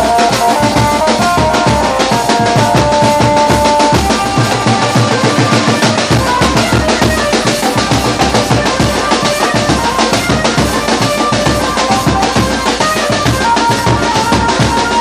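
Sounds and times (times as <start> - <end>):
music with fast drumbeat: 0.0 - 15.0.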